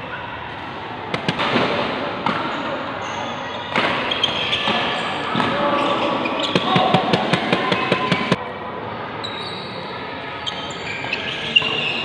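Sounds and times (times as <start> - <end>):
shoes squeaking on court floor: 2.6 - 8.4, 9.2 - 12.0.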